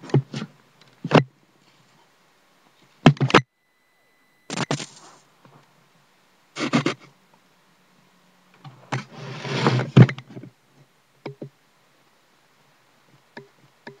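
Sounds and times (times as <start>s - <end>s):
handling rustle: 4.5s - 5.8s.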